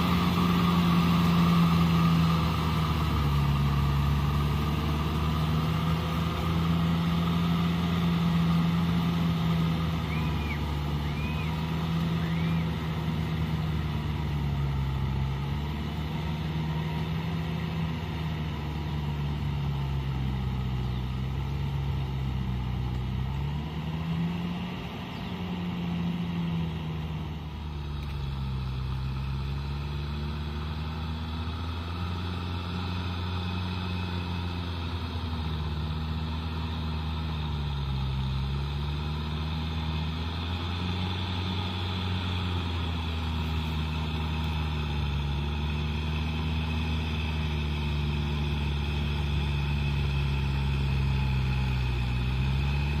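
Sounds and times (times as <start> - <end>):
tractor diesel engine working: 0.0 - 53.0.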